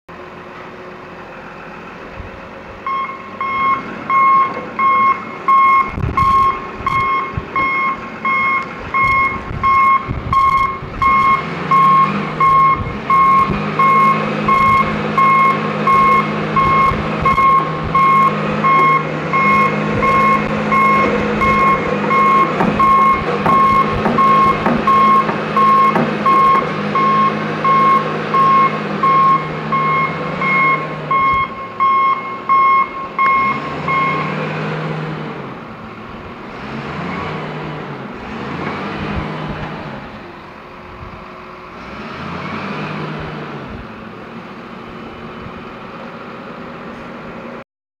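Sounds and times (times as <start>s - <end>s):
diesel engine working: 0.1s - 47.6s
back-up alarm beeping: 2.8s - 34.4s.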